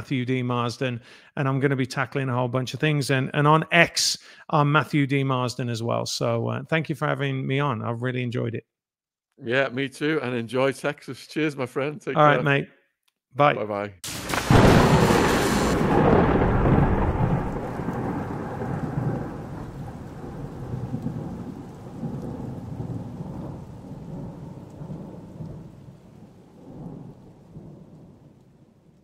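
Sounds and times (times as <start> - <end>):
sharp thunderclap: 14.0 - 28.9
rain: 14.0 - 29.0
rolling thunder rumble: 14.1 - 29.0.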